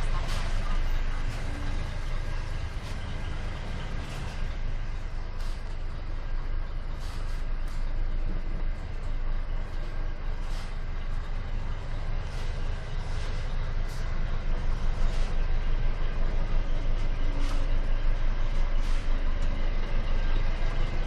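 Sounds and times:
diesel truck engine droning: 0:00.0 - 0:21.0.

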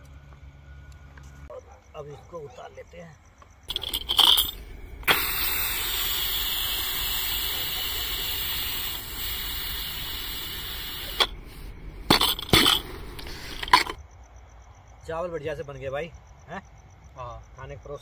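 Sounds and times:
steam hissing from pressure cooker: 0:03.7 - 0:14.0.

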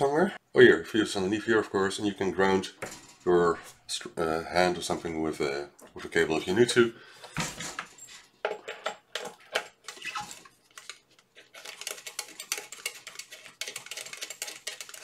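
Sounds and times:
plastic clicks and rattles: 0:08.5 - 0:15.0.

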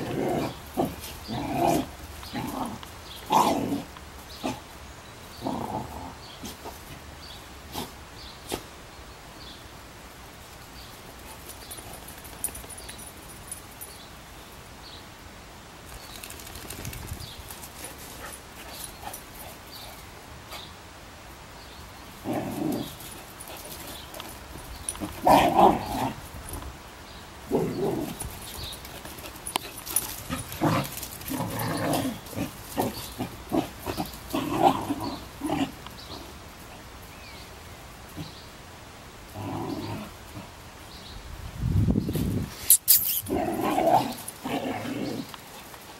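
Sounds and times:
dogs growling and barking: 0:00.0 - 0:04.7, 0:05.4 - 0:07.0, 0:22.2 - 0:24.3, 0:24.9 - 0:26.3, 0:27.5 - 0:28.4, 0:29.6 - 0:36.3, 0:39.3 - 0:40.5, 0:43.2 - 0:45.7.

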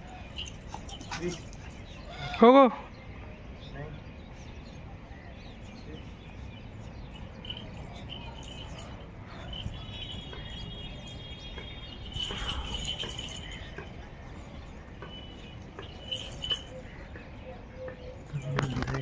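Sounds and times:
birds chirping: 0:00.0 - 0:19.0
high bird trill: 0:05.5 - 0:19.0.

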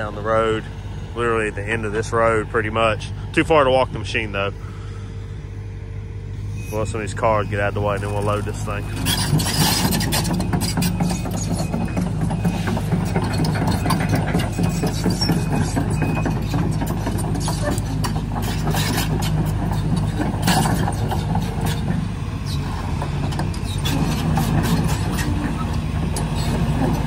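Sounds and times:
diesel engine running: 0:00.0 - 0:27.0
steel tracks clanking: 0:06.5 - 0:27.0.

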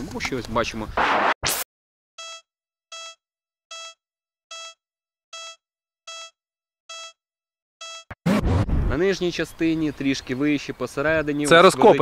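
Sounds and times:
short electronic beeps: 0:02.2 - 0:07.2, 0:07.8 - 0:08.2.

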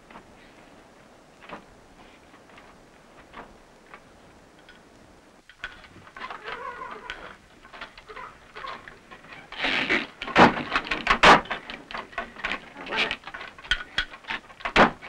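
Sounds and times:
wooden loom clattering: 0:05.5 - 0:15.0.

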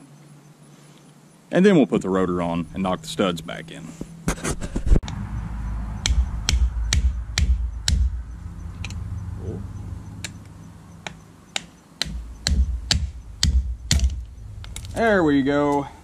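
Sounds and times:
hammer striking metal: 0:06.0 - 0:08.2, 0:11.0 - 0:14.9.

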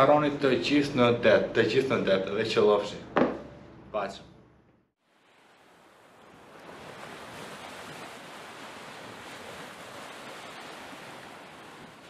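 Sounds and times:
ocean surf rushing: 0:05.2 - 0:12.0.

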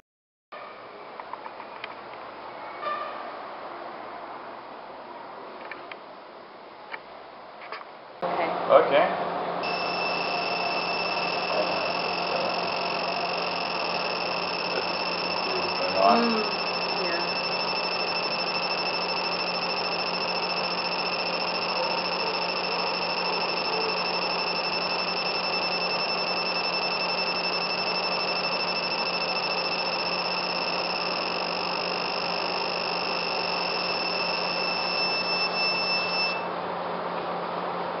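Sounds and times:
fume extractor rushing: 0:09.6 - 0:36.5
laser engraver high-pitched whine: 0:09.6 - 0:36.5.

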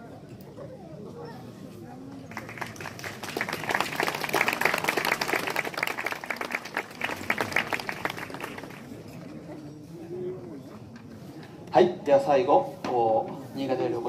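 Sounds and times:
crowd applauding: 0:02.3 - 0:09.0.

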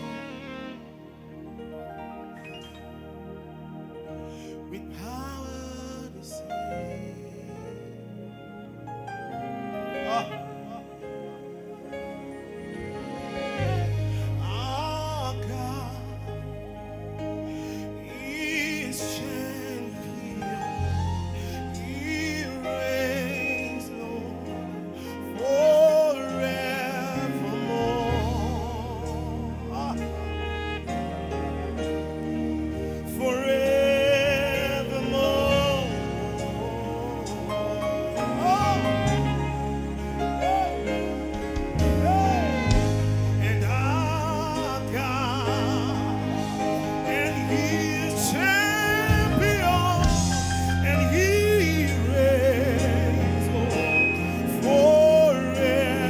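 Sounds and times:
instrumental backing with bass: 0:00.0 - 0:56.0
man singing with vibrato: 0:04.7 - 0:08.3, 0:09.7 - 0:12.3, 0:13.2 - 0:17.2, 0:17.8 - 0:56.0.

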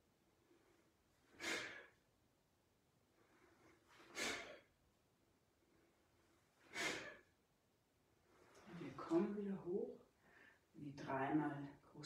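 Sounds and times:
forceful exhalations: 0:00.4 - 0:02.0, 0:03.2 - 0:04.8, 0:05.7 - 0:07.4.

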